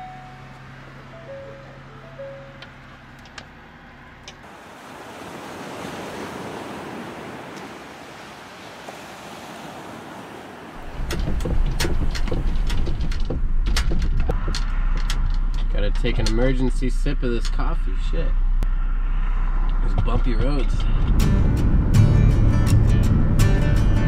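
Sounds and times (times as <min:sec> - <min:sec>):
vehicle road rumble: 0:00.0 - 0:05.7, 0:08.9 - 0:24.0
ocean waves washing on shore: 0:04.4 - 0:12.3
van cabin rattling: 0:10.8 - 0:18.2.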